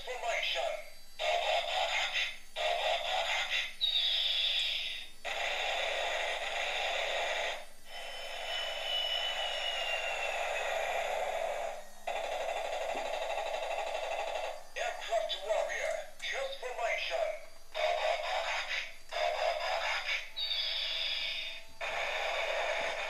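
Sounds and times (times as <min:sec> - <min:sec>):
toy electronic music: 0:00.0 - 0:23.0
falling whistle: 0:03.8 - 0:05.1, 0:07.9 - 0:11.9, 0:18.8 - 0:23.0.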